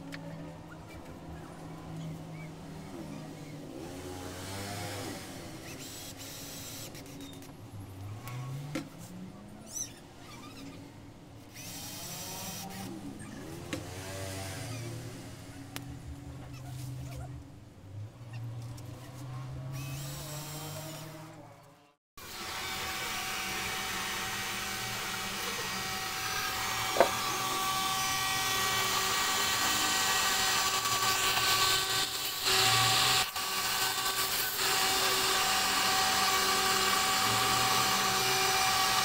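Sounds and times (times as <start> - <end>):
router spindle whining: 18.7 - 21.4, 22.2 - 39.0
cordless drill running: 22.2 - 39.0.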